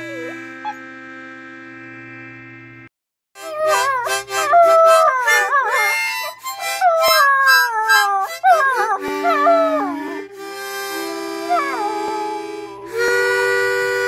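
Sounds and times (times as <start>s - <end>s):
puppy howling: 0.0s - 0.8s, 3.4s - 10.3s, 11.4s - 12.4s
held music notes: 0.0s - 2.4s, 3.4s - 14.0s.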